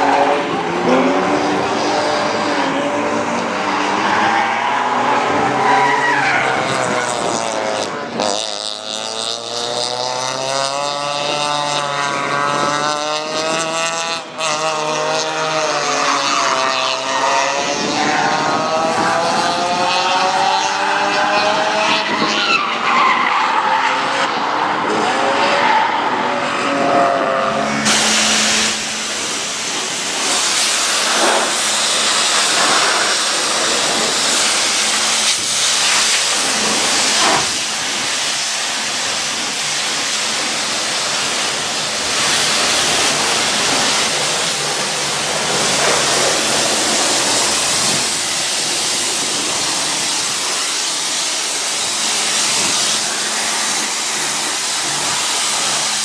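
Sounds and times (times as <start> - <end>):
race car engine: 0.0 - 56.0
pressure washer spraying water: 27.6 - 56.0.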